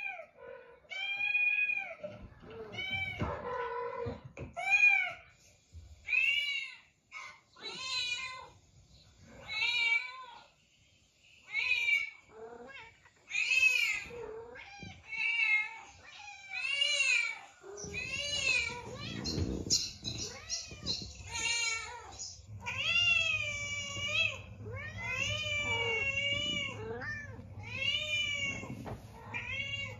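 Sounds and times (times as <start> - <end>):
cats meowing: 0.0 - 5.3, 5.9 - 8.6, 9.2 - 10.6, 11.4 - 29.9
low rumble: 22.1 - 29.9.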